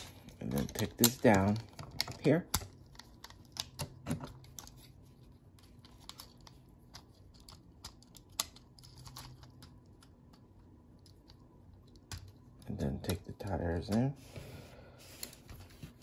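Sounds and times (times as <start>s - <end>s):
plastic toy parts clicking: 6.0s - 10.1s.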